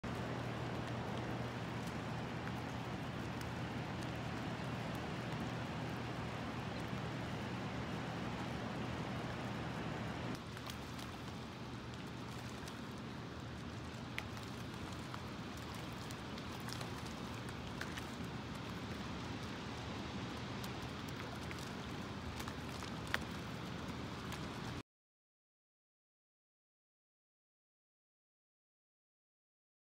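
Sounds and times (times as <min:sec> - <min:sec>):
steady low hum: 0:00.0 - 0:24.8
small splashes of fish: 0:10.3 - 0:24.8.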